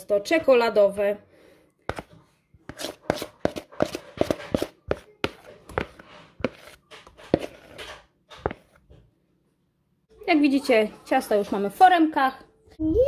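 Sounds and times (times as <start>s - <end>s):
spoon scraping and tapping bowl: 2.7s - 8.7s.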